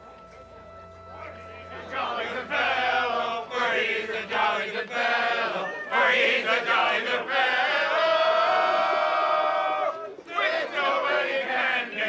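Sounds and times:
men singing chanted phrases: 1.7s - 9.2s.

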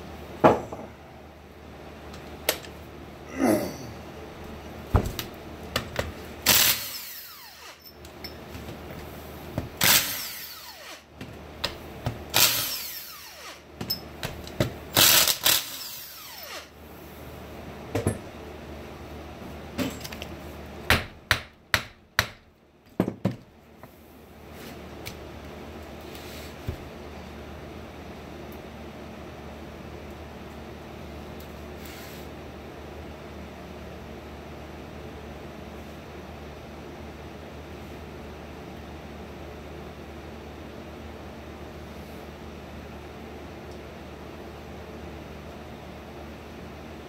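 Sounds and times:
cordless drill running: 6.5s - 7.8s, 9.8s - 11.0s, 12.4s - 13.6s, 15.0s - 16.7s.

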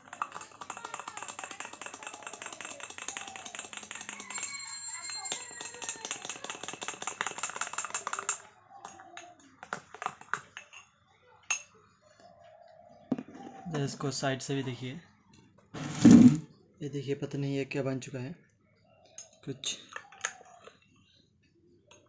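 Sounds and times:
metal spoon stirring in glass: 0.0s - 9.0s.

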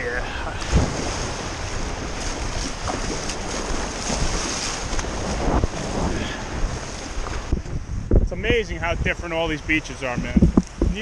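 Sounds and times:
wind buffeting microphone: 0.0s - 11.0s
small surf washing and foaming: 0.2s - 7.7s.

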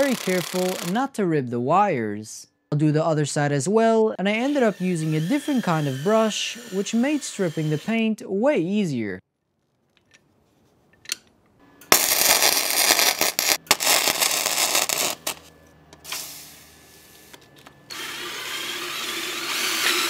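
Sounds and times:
welder arc crackling and sputtering: 0.0s - 1.0s, 11.9s - 15.5s
wire brush power tool running: 0.0s - 1.0s, 4.4s - 7.9s, 11.9s - 15.5s, 17.9s - 20.0s.

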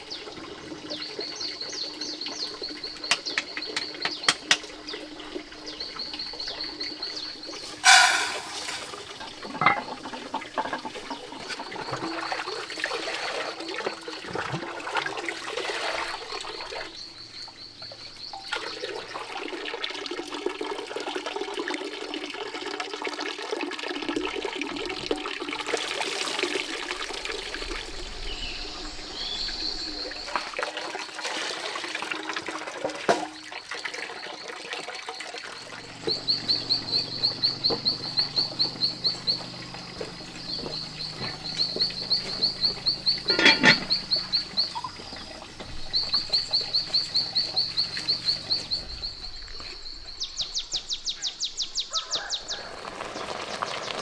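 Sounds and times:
water running and splashing: 0.0s - 54.0s
high fast-pulsing animal call: 7.8s - 8.9s.

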